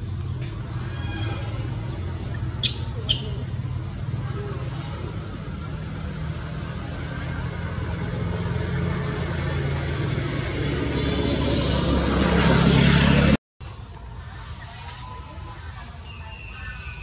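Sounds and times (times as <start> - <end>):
vehicle engine humming: 0.0 - 15.8
rushing noise: 3.5 - 13.4.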